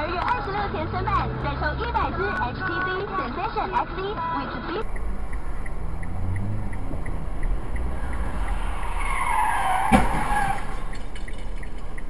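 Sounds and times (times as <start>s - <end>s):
car rumbling on road: 0.0s - 12.0s
light ticking: 4.8s - 8.6s, 10.8s - 12.0s
car tyres squealing: 4.8s - 12.0s
sharp knock: 9.9s - 10.3s.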